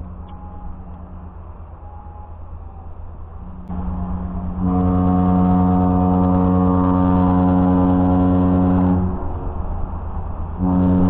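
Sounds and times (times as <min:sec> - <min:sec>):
ship's fog horn blast: 0:03.6 - 0:09.5, 0:10.6 - 0:11.0.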